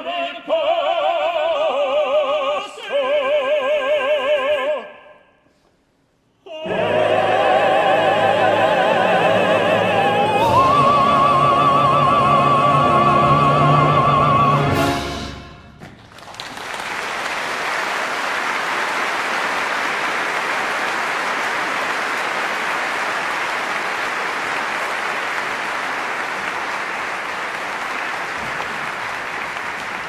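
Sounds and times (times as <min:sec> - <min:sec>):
audience applauding: 0:15.8 - 0:30.0.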